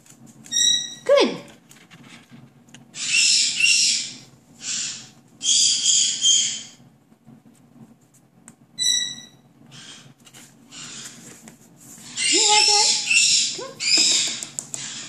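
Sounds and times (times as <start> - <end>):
parrot harsh raspy calls: 2.9 - 6.8, 8.8 - 11.2, 12.0 - 15.0.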